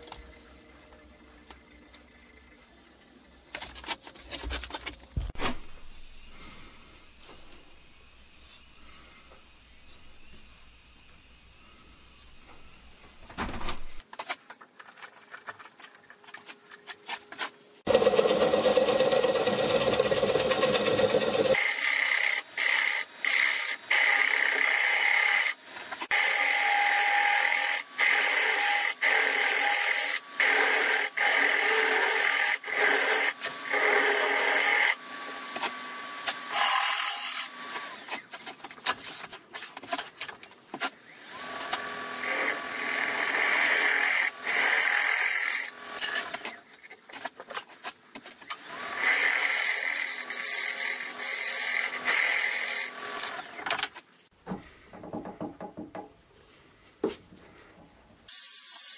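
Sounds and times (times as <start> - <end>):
gouge cutting wood on lathe: 17.9 - 38.2, 41.2 - 46.4, 48.7 - 53.5.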